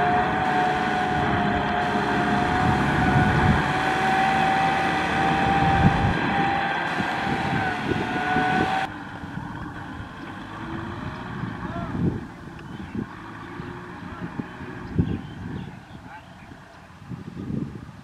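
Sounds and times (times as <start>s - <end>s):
steady high whine: 0.0s - 10.3s
tractor diesel engine under load: 0.0s - 18.0s.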